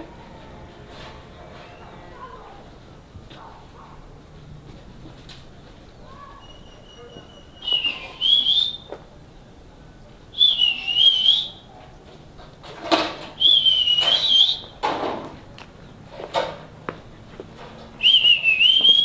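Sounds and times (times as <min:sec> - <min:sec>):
scuffing noises: 0:03.2 - 0:06.4
person whistling a tune: 0:06.4 - 0:08.9, 0:10.4 - 0:11.6, 0:13.4 - 0:14.7, 0:18.0 - 0:19.0.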